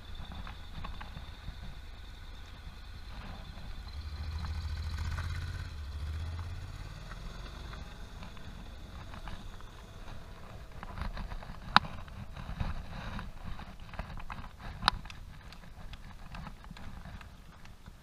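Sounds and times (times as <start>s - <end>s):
motorcycle engine passing by: 0.2s - 13.3s.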